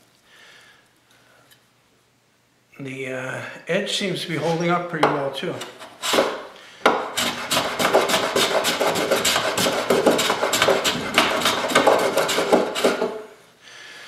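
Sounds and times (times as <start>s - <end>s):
hand plane shaving wood: 5.6s - 6.4s, 7.0s - 13.2s.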